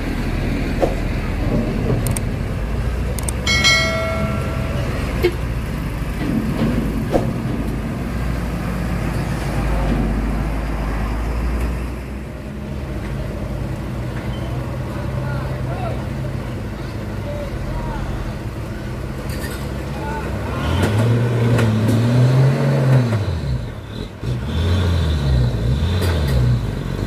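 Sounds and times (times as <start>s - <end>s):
truck diesel engine running: 0.0s - 20.8s
high-pitched tone: 3.5s - 5.4s.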